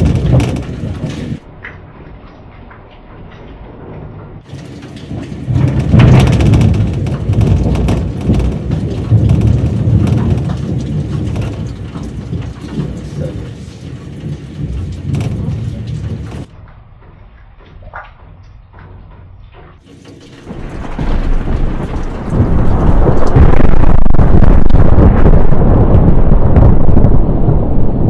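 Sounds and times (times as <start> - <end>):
thunder rumbling: 0.0 - 2.1, 3.7 - 16.6, 19.9 - 28.0
rain falling: 0.0 - 3.1, 4.4 - 16.5, 19.8 - 27.1.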